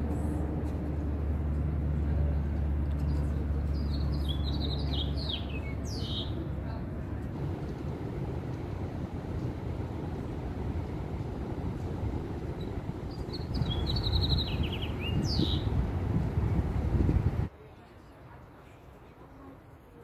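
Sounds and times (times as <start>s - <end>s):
steady low city hum: 0.0s - 17.5s
bird chirping: 8.7s - 16.6s.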